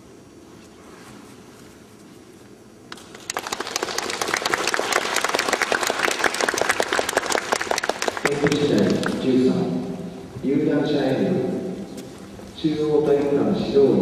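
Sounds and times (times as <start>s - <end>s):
audience applauding: 2.9s - 9.6s.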